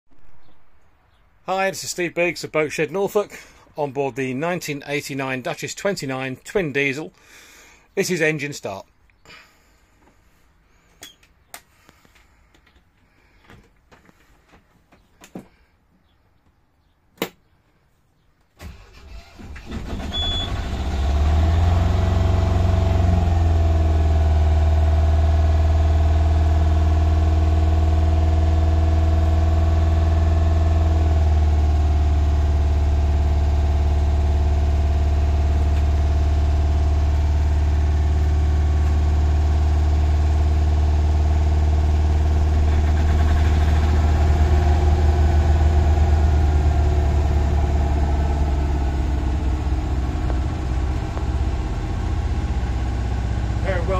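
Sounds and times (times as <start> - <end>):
diesel engine cranking and idling: 18.6 - 53.9.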